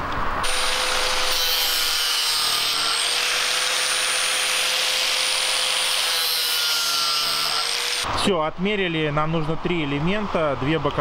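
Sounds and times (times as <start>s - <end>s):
angle grinder whining: 0.4s - 8.2s.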